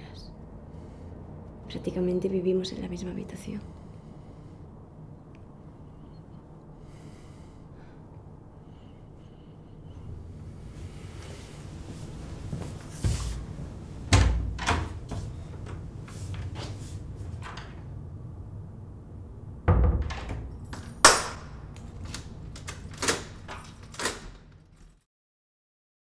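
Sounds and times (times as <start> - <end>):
low room hum: 0.0 - 25.0
wooden door thumping shut: 19.7 - 20.5.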